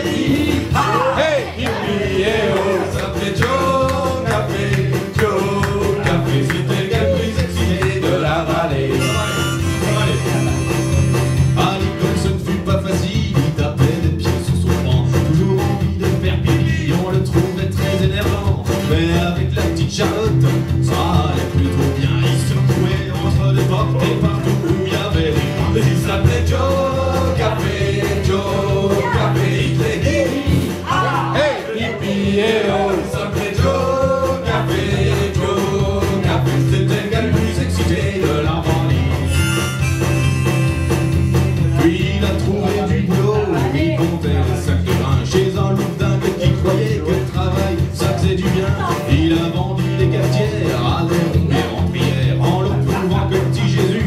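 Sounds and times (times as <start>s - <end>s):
man singing: 0.0s - 39.7s, 40.8s - 54.0s
strummed acoustic guitar: 0.0s - 54.0s
held melody notes: 8.9s - 12.2s, 39.2s - 42.2s.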